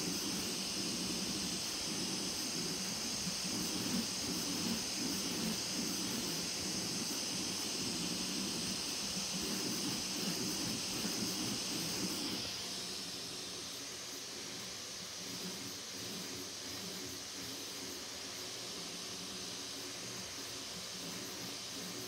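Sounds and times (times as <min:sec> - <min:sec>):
stepper motors buzzing: 0:00.0 - 0:13.7
cooling fans hissing: 0:00.0 - 0:22.0.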